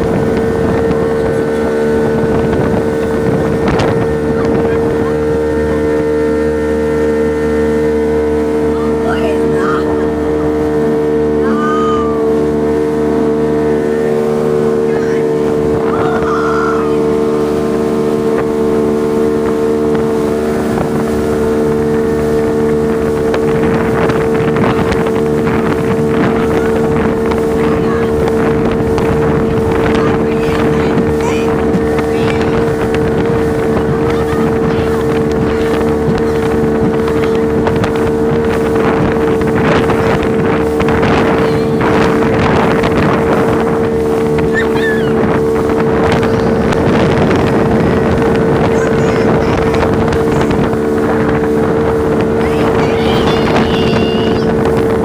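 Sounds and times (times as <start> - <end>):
motorboat engine running: 0.0 - 55.0
water splashing against hull: 0.0 - 55.0
wind buffeting microphone: 0.0 - 55.0.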